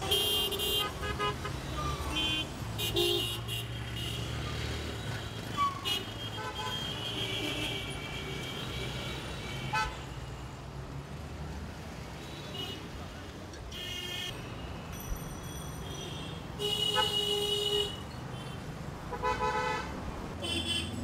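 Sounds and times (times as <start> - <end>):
vehicle horns tooting: 0.0 - 10.2, 13.7 - 14.4, 15.6 - 21.0.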